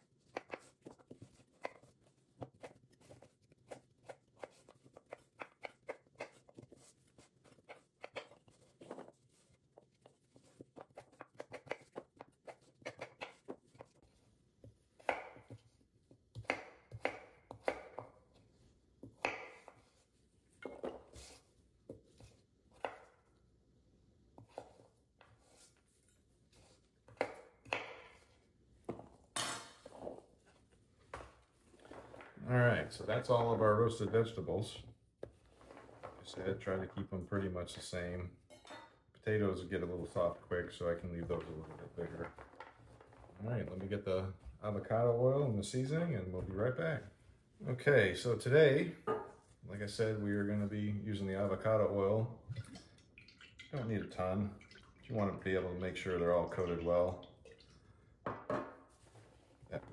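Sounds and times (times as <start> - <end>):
knife chopping on wooden board: 15.0 - 15.7, 16.3 - 18.2, 19.0 - 19.9, 27.1 - 28.2.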